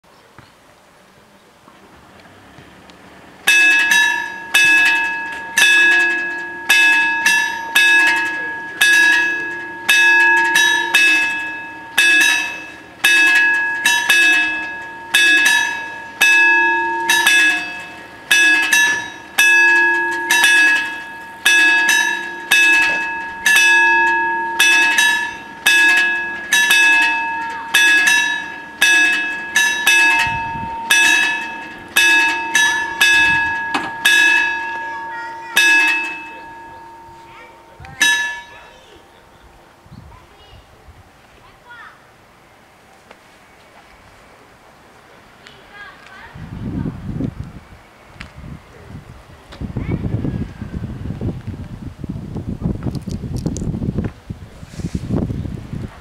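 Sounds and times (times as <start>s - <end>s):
level crossing bells ringing: 3.3s - 39.8s.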